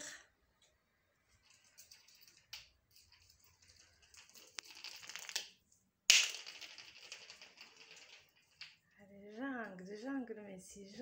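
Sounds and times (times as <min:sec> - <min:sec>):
ball rolling rattle: 0:01.3 - 0:09.0.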